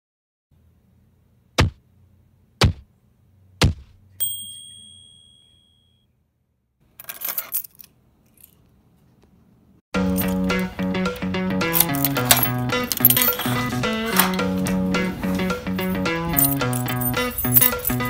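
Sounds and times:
thumps: 0:01.6 - 0:01.8, 0:02.6 - 0:02.9, 0:03.6 - 0:04.0
bell-like ding: 0:04.2 - 0:06.1
music: 0:10.0 - 0:18.0.

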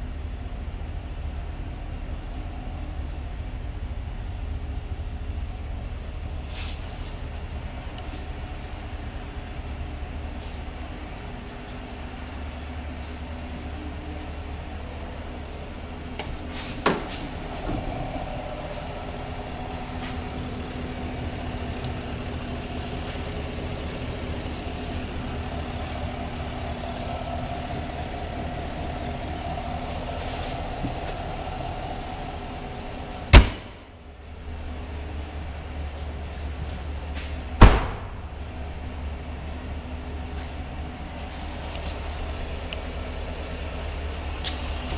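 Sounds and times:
steady low hum: 0:00.0 - 0:44.9
truck hood slamming shut: 0:33.3 - 0:33.8, 0:37.6 - 0:38.2.

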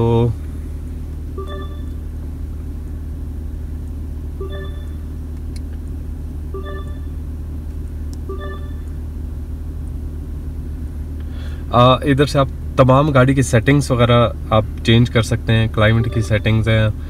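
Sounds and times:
short electronic beeps: 0:01.4 - 0:02.0, 0:04.4 - 0:05.0, 0:06.6 - 0:07.1, 0:08.3 - 0:08.9, 0:15.9 - 0:16.6.

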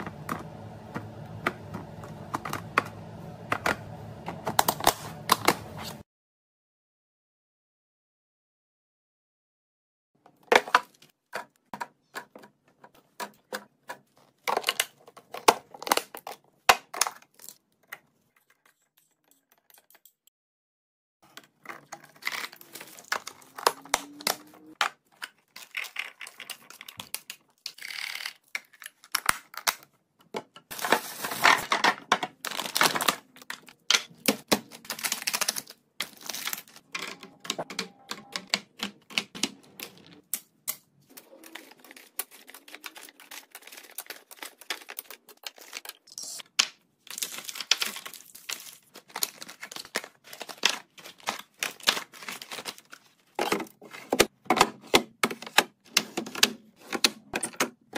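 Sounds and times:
plastic containers clicking and rattling: 0:10.2 - 0:18.0, 0:21.3 - 0:40.3, 0:47.1 - 0:57.9.

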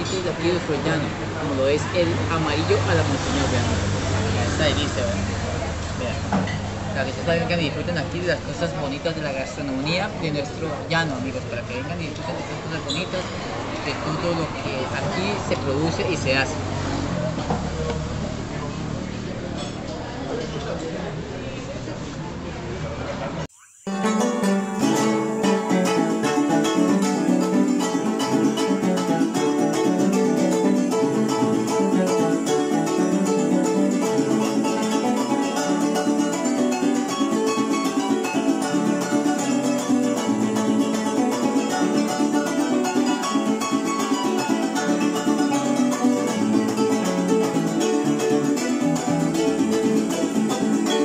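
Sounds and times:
plucked string music: 0:00.0 - 0:13.5, 0:23.9 - 0:51.0.

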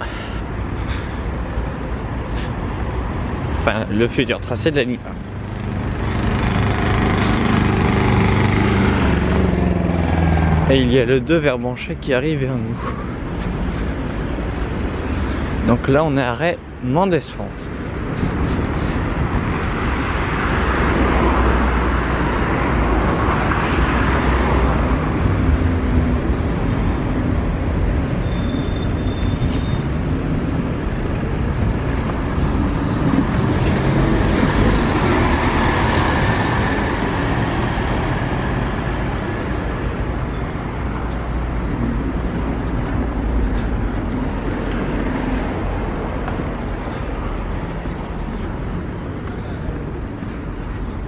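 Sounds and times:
city road traffic: 0:00.0 - 0:51.0
bus driving past: 0:05.2 - 0:11.9, 0:17.6 - 0:51.0.

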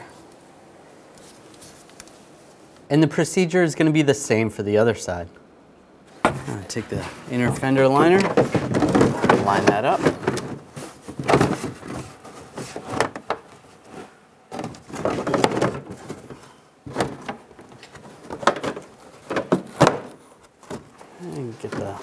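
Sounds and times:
plastic rubbing and scraping: 0:06.2 - 0:22.0.

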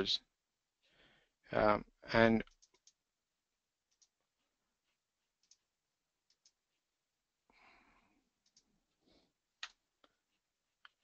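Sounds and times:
soft breath: 0:00.8 - 0:01.4, 0:07.5 - 0:08.3, 0:08.9 - 0:09.4
computer mouse clicks: 0:02.4 - 0:03.0, 0:03.9 - 0:04.2, 0:05.4 - 0:06.6, 0:08.4 - 0:08.7.

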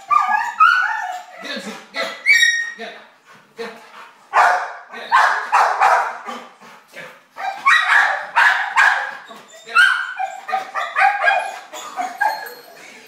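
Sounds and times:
dog barking loudly: 0:00.0 - 0:01.0, 0:04.3 - 0:06.5, 0:07.4 - 0:12.1.

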